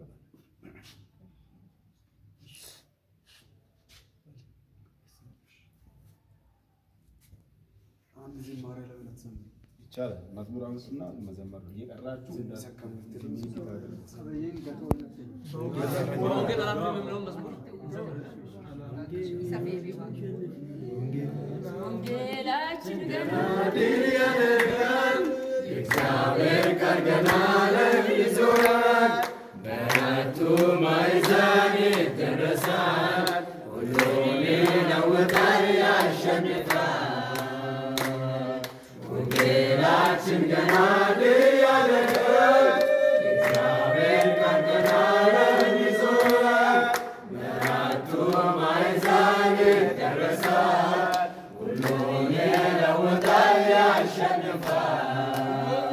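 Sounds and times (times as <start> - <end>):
congregation singing a hymn: 20.8 - 55.9.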